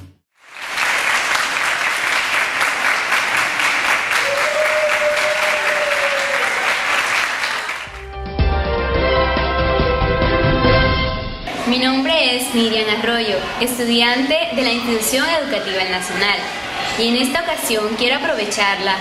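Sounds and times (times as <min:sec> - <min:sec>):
children applauding: 0:00.4 - 0:08.1
music: 0:07.9 - 0:11.5.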